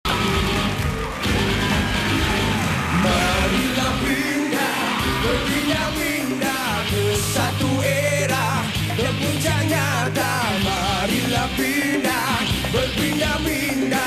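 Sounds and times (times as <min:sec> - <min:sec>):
live pop-rock band: 0:00.1 - 0:14.0
man singing: 0:02.9 - 0:14.0.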